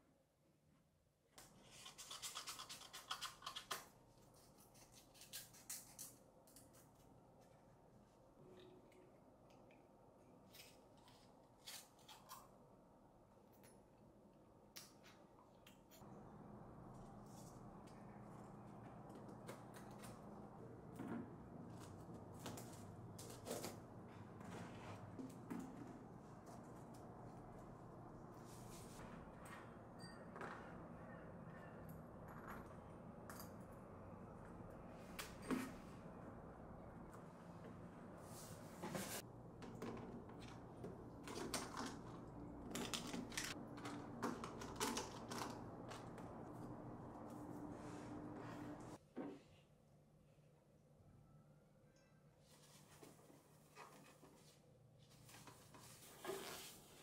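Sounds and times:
low room hum: 0.0 - 56.2
packaged items clicking and crinkling: 41.2 - 46.2.

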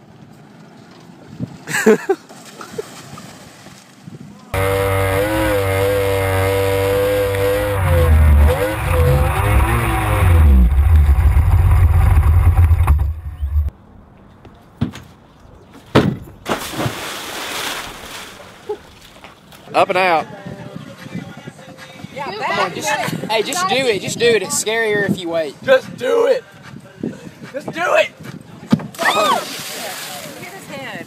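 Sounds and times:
speedboat motor running: 4.6 - 13.7
sharp knocks: 15.9 - 16.6
wind buffeting microphone: 20.0 - 29.0.

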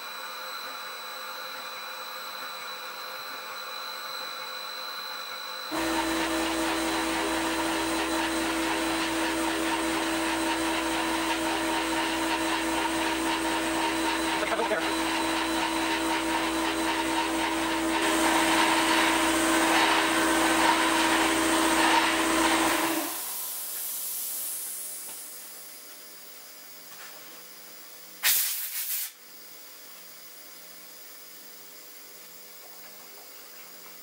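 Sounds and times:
lathe machine hum: 5.7 - 23.9
coolant hiss: 5.7 - 34.0.

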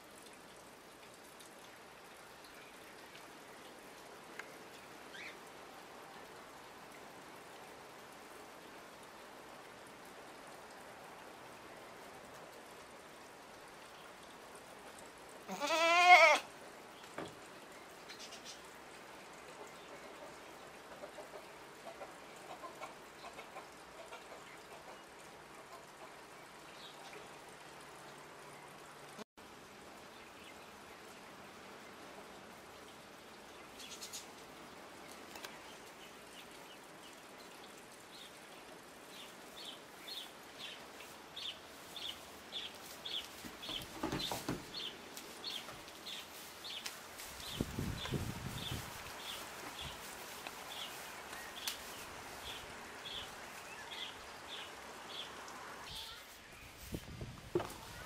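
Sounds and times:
small ticks and rustles: 0.0 - 58.0
goat bleating: 15.5 - 16.5
rain hissing: 26.3 - 58.0.

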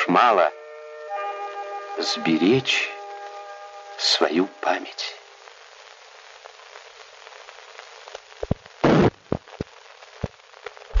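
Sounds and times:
old film soundtrack hiss: 0.0 - 11.0
clicks and pops: 8.1 - 11.0.

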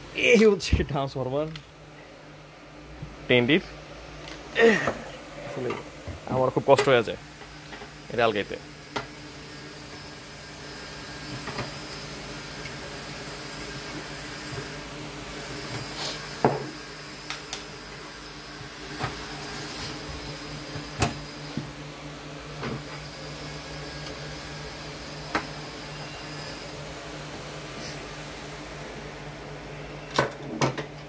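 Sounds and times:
steady background hum: 0.0 - 31.0.

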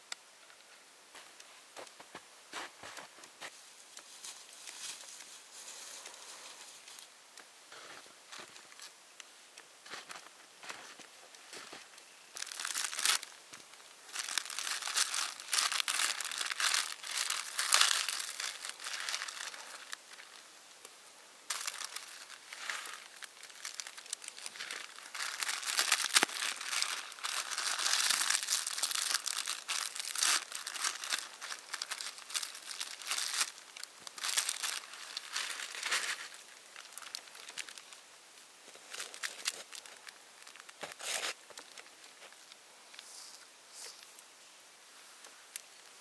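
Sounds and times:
plastic packet crinkling: 12.3 - 20.4, 21.5 - 38.0, 38.7 - 42.4
packet tearing open: 14.1 - 20.0, 21.5 - 33.6.

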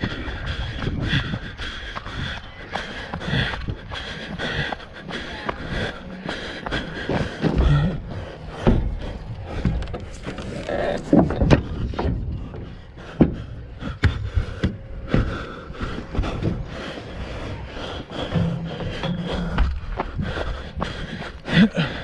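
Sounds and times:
knocks and thumps: 11.1 - 15.5.

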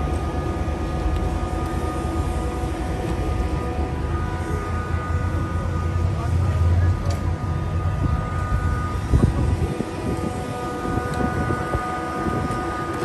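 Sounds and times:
tram electrical whine: 0.0 - 13.0.

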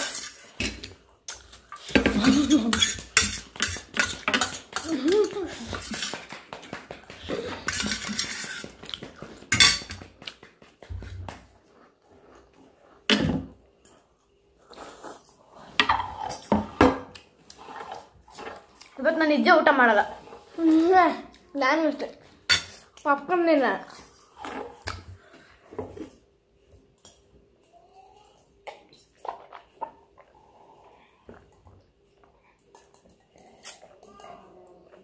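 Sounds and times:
fork clinking on steel plates: 9.6 - 10.0.

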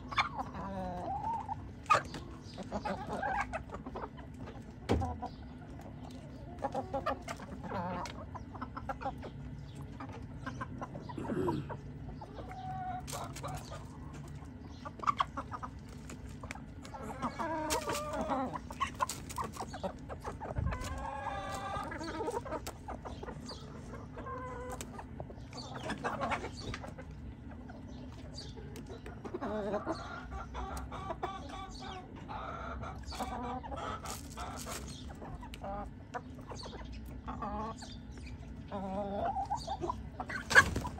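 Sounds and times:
chickens clucking: 0.0 - 40.9.

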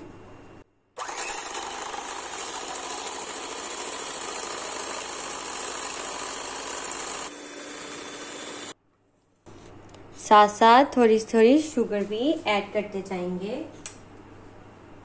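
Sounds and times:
electric hand mixer whisking: 1.0 - 8.8.

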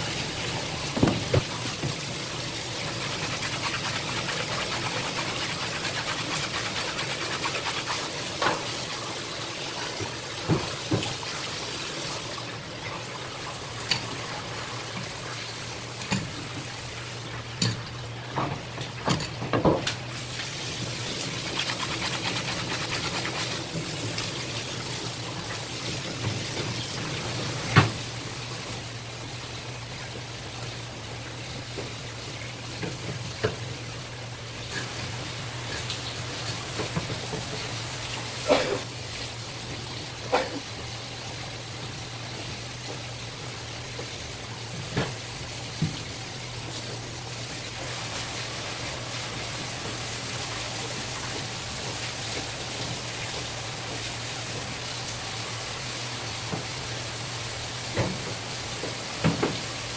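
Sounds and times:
tap water splashing: 0.8 - 2.1, 2.8 - 8.9, 9.8 - 11.4, 16.0 - 16.8, 27.6 - 28.0, 32.7 - 33.6, 44.8 - 47.0, 56.4 - 56.9, 57.8 - 59.8
knocks on cutting board: 1.0 - 1.5, 59.2 - 59.6.

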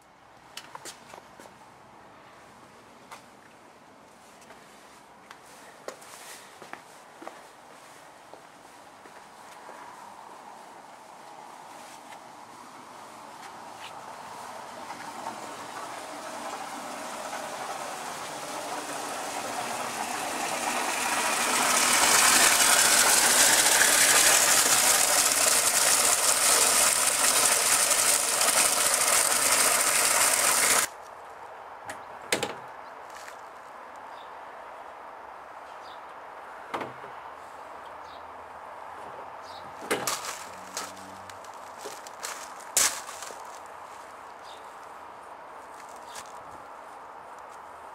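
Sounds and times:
hose water jetting into plastic bin: 14.4 - 30.9
motor knocking on bin rim: 14.5 - 30.9.

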